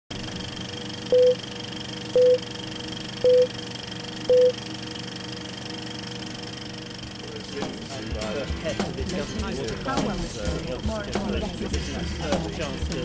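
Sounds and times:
short countdown beeps: 1.1s - 1.4s, 2.2s - 2.5s, 3.2s - 3.6s, 4.3s - 4.6s.

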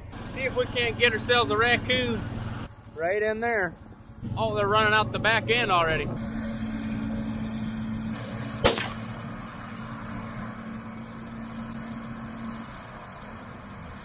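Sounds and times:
engine humming: 0.0s - 14.0s
rifle shot: 8.6s - 9.2s.

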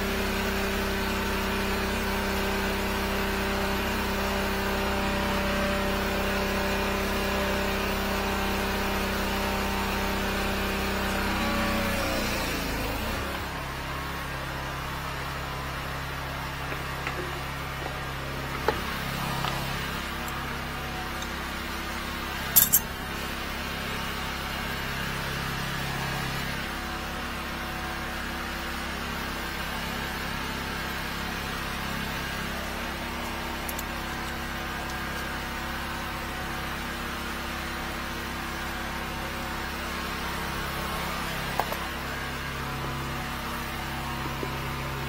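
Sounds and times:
engine droning: 0.0s - 45.0s
sharp metal clinks: 22.6s - 22.9s.

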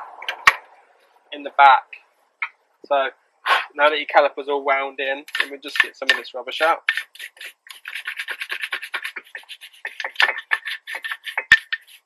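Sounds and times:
hand tool scraping metal: 5.3s - 12.0s.

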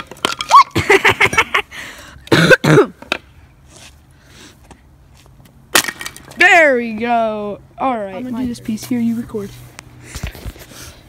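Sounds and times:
wood pieces clattering on concrete: 0.0s - 0.6s, 5.7s - 6.4s.

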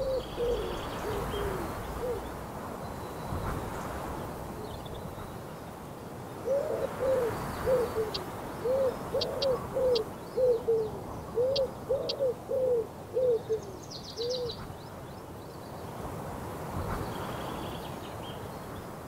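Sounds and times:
wood pigeon cooing: 0.0s - 2.3s, 6.4s - 14.5s.

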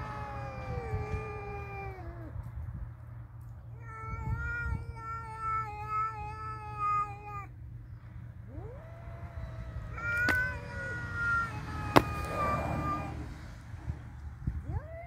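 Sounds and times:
cats yowling: 0.0s - 2.4s, 3.7s - 7.6s, 8.4s - 13.4s, 14.6s - 15.0s.

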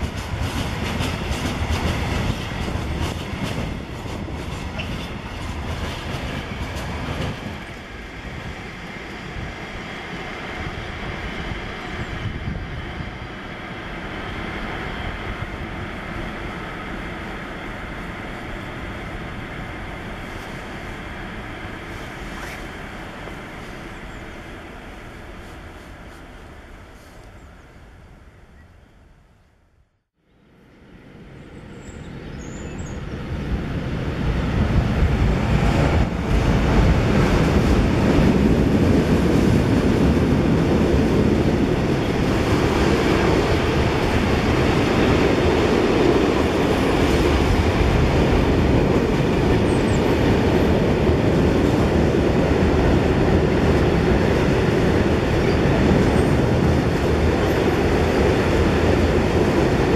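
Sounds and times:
freight train wheels rumbling: 0.0s - 28.4s, 30.9s - 59.9s.

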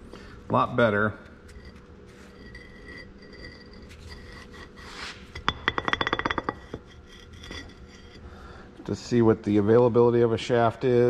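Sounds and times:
metal shaft clinking and rattling: 1.4s - 4.7s, 5.3s - 8.2s.

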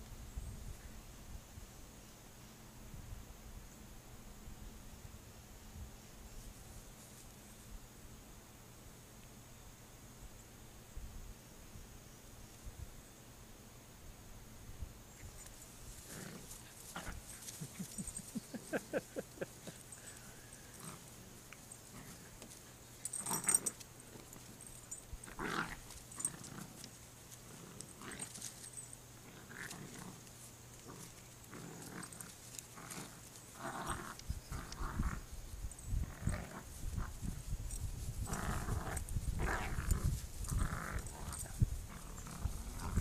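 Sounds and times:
dogs growling in play: 15.9s - 43.0s.

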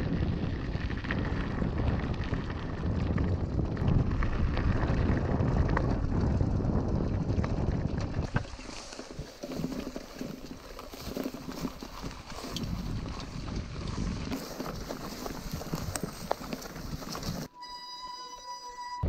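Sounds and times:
wind buffeting microphone: 0.0s - 17.5s
bike rattles and clicks: 0.0s - 17.6s
bike tyres rumbling: 0.0s - 17.6s
bike pushing through dry grass: 0.1s - 18.8s.

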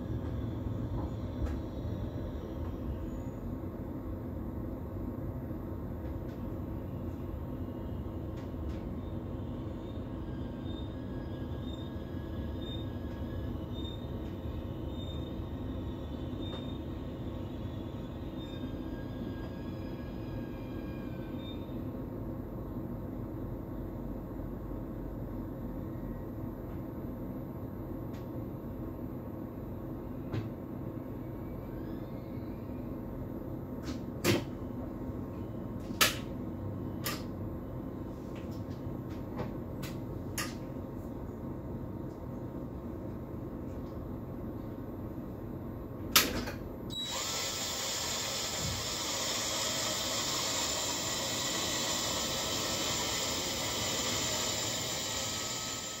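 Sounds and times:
train cab low hum: 0.0s - 47.2s, 47.9s - 56.0s
loud steady hiss: 47.0s - 56.0s.

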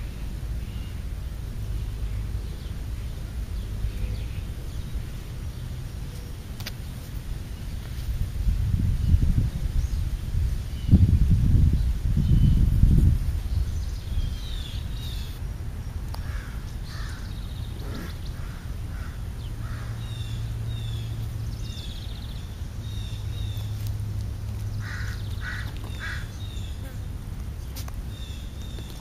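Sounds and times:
birds chirping: 0.0s - 29.0s
steady low hum: 0.0s - 29.0s
harsh bird calls: 16.2s - 23.7s, 24.7s - 29.0s.

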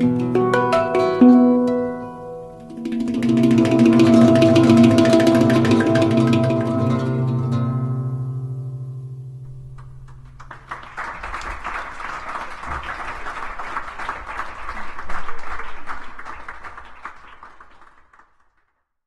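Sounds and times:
guitar and handpan ringing: 0.0s - 10.1s
audience applauding: 9.8s - 18.8s.

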